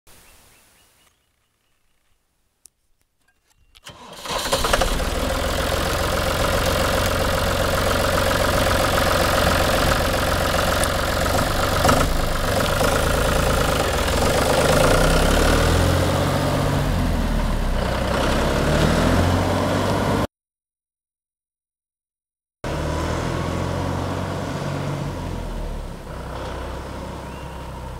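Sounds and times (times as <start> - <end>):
tractor diesel engine running: 3.8 - 20.3, 22.7 - 27.9.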